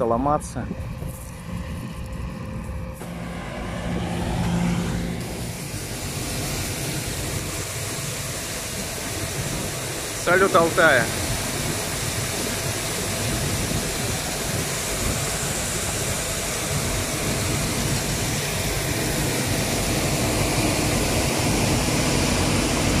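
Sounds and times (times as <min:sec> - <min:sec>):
combine harvester running: 0:00.0 - 0:23.0
grain pouring into trailer: 0:05.2 - 0:22.9.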